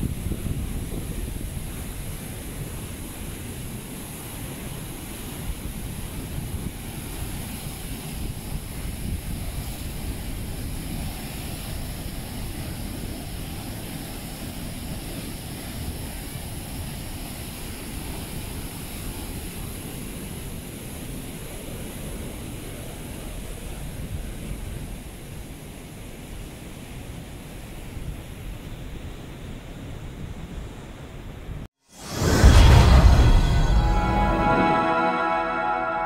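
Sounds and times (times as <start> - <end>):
wind buffeting microphone: 0.0 - 3.9.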